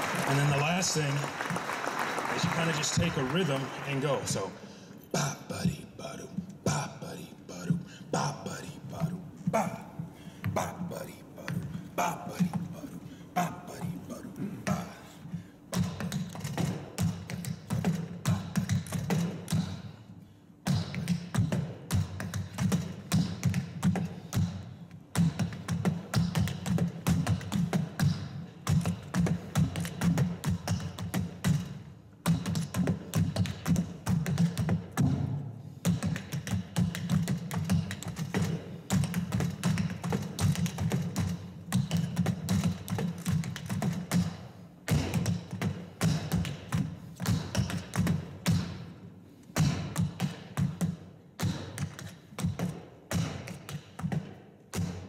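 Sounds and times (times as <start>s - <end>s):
tap shoes on wooden board: 25.2s - 35.2s, 35.8s - 48.8s.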